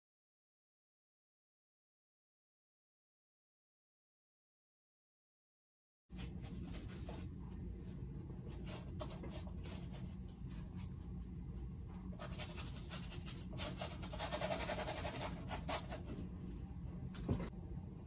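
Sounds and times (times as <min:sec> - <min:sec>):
paintbrush scratchy strokes: 0:06.1 - 0:16.1
low room hum: 0:06.1 - 0:18.0.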